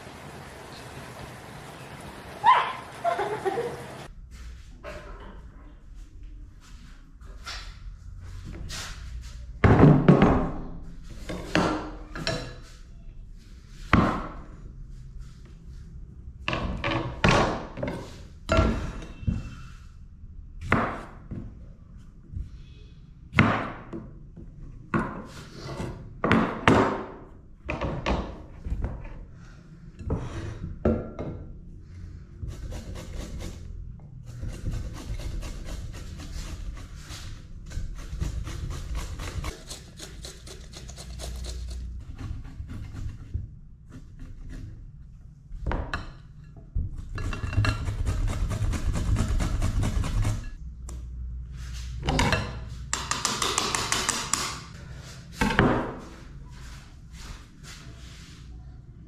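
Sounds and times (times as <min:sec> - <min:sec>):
cucumber grated on metal grater: 0:34.3 - 0:43.2.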